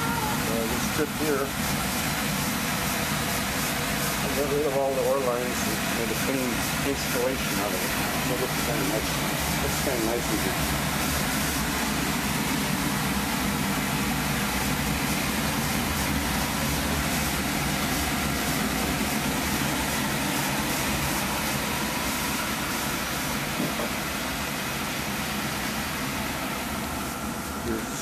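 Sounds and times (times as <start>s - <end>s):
oil burner rumbling: 0.0s - 28.0s.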